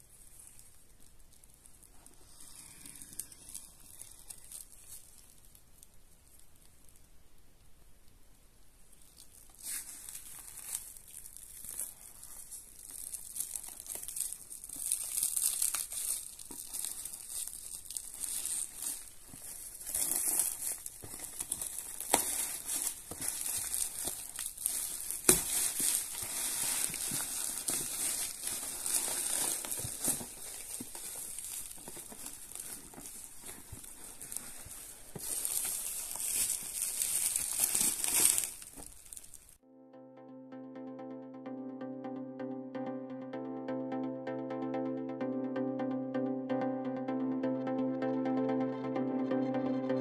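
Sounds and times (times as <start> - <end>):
plastic bag crinkling: 0.0 - 5.9, 9.0 - 39.6.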